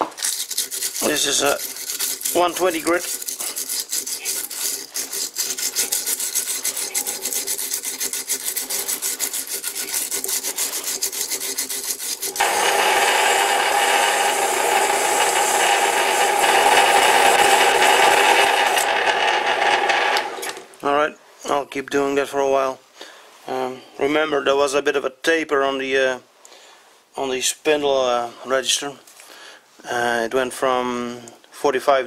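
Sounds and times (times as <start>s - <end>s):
sandpaper rasping on metal: 0.3s - 19.6s.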